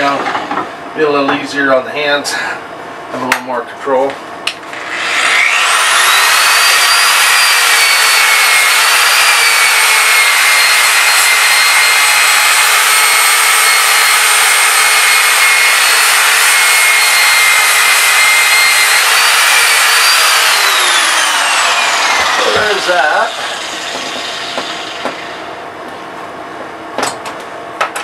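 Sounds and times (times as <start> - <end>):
angle grinder grinding wood: 4.7 - 25.5.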